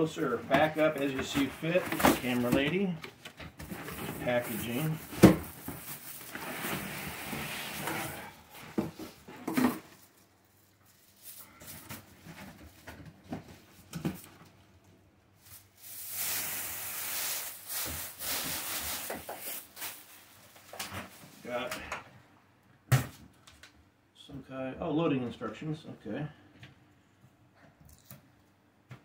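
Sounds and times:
plastic packaging crinkling: 0:15.5 - 0:20.3.

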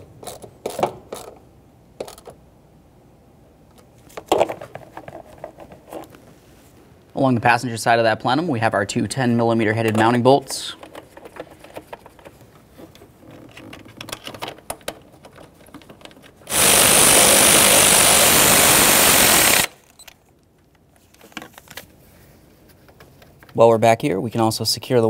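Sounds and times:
cordless power tool running: 0:16.5 - 0:19.8.

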